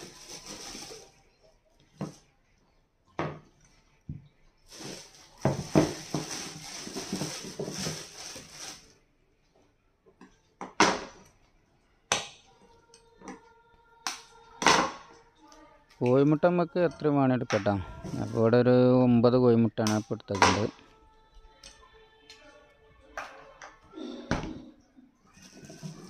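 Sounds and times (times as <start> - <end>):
plastic bag crinkling: 0.0 - 1.3, 4.7 - 9.0.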